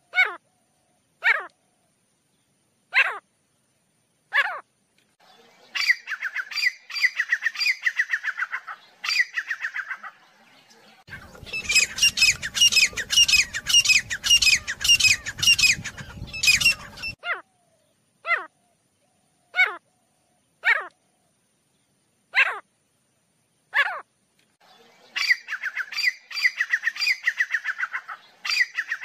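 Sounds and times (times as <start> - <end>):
francolin calling: 5.3 - 10.3, 11.0 - 21.4, 24.7 - 29.0.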